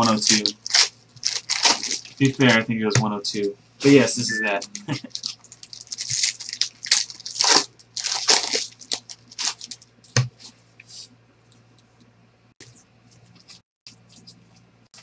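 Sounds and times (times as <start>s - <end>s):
foil wrappers ripping and crinkling: 0.0s - 2.6s, 4.9s - 9.9s.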